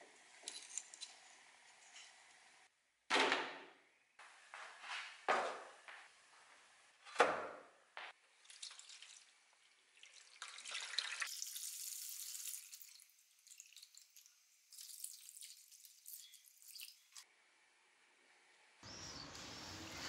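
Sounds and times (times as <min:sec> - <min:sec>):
liquid sloshing and dripping: 0:08.2 - 0:17.2
liquid poured into metal tray: 0:08.3 - 0:17.2.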